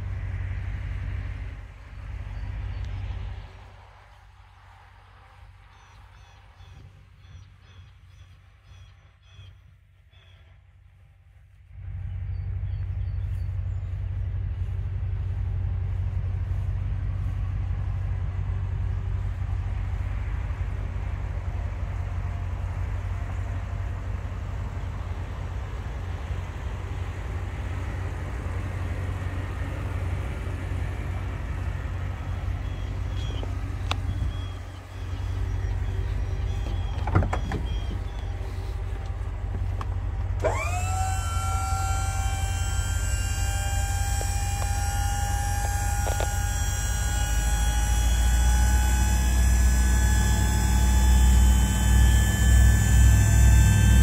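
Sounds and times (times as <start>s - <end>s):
truck engine idling: 0.0s - 54.0s
rising whine: 11.5s - 54.0s.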